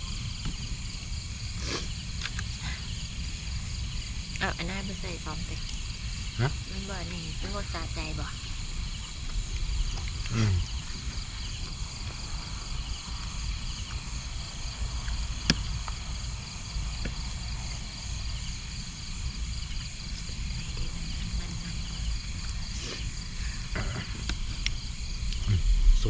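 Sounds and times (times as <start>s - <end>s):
insects and frogs chorus: 0.0s - 26.0s
low rumble: 23.3s - 26.0s.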